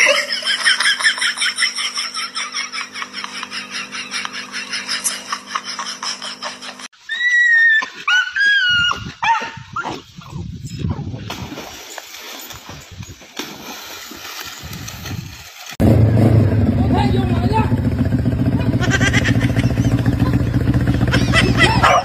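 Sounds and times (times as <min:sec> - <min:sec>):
low rumbling noise: 0:15.8 - 0:22.0.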